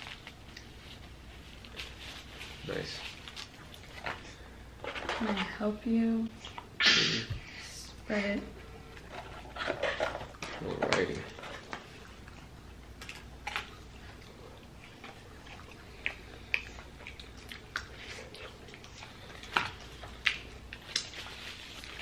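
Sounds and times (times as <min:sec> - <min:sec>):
chewing: 0:00.0 - 0:05.2, 0:08.9 - 0:22.0
paper food boxes rustling: 0:00.0 - 0:05.8, 0:08.8 - 0:12.3.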